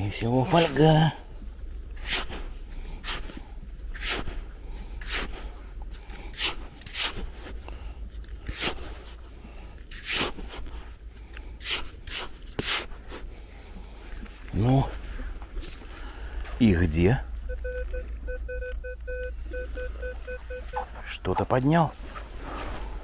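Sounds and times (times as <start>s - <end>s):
digging tool scraping sand: 2.0s - 5.6s, 6.3s - 7.6s, 8.4s - 9.2s, 9.9s - 11.0s, 11.6s - 13.3s.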